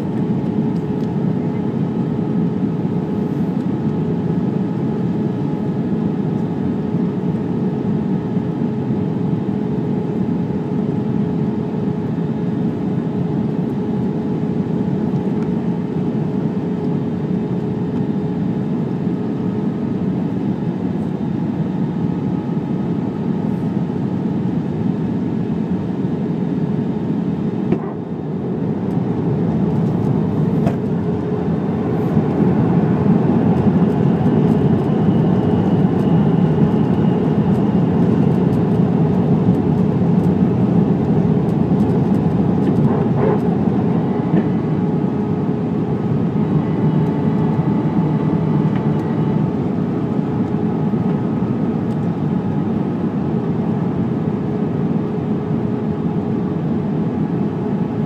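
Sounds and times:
jet engines and airflow roar: 0.0s - 58.0s
steady hum: 7.3s - 55.8s.

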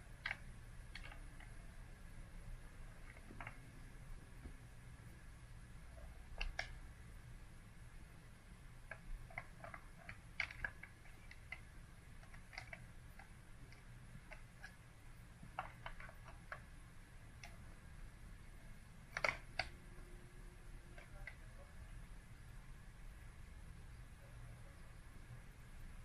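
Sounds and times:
irregular clicks and ticks: 0.0s - 1.8s, 2.8s - 3.8s, 6.0s - 6.8s, 8.8s - 17.8s, 18.4s - 21.7s
faint steady hum: 0.0s - 26.0s.

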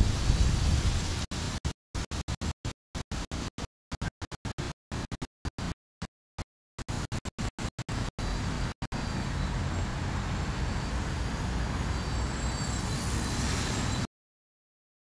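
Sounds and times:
wind rumble on microphone: 0.0s - 1.6s.

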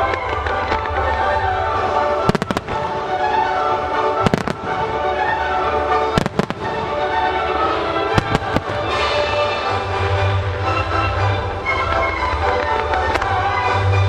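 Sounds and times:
fireworks bangs: 0.0s - 10.4s
music playing: 0.0s - 14.0s.

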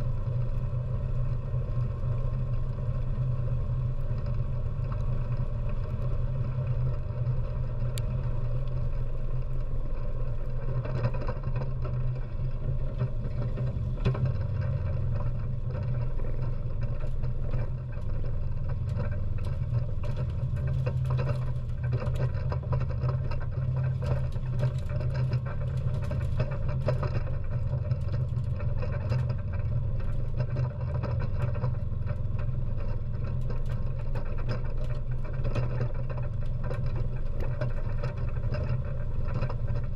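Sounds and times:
atv engine running: 0.0s - 39.9s
small rattles and knocks: 2.2s - 39.9s.

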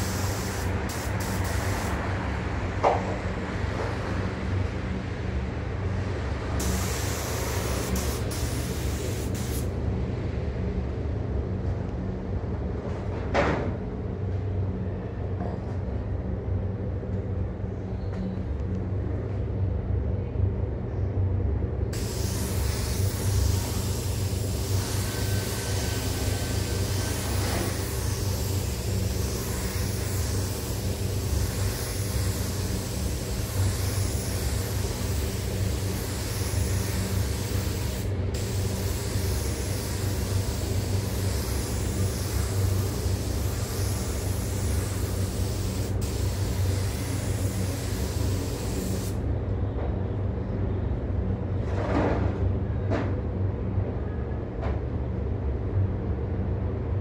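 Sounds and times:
spray gun hissing: 0.0s - 2.0s, 6.6s - 9.7s, 22.0s - 49.2s
ventilation fans humming: 0.0s - 51.6s.

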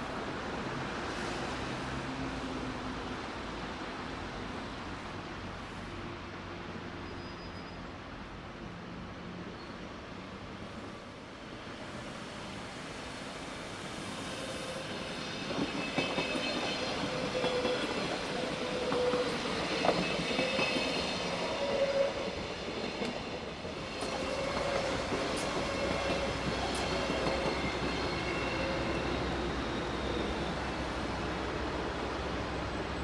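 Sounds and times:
train wheels rumbling: 13.8s - 33.0s.

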